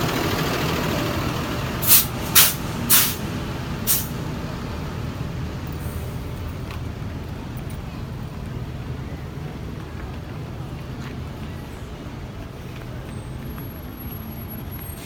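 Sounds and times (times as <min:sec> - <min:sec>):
low rumble of road traffic: 0:00.0 - 0:15.0
short loud hiss: 0:01.8 - 0:03.2, 0:03.9 - 0:04.1.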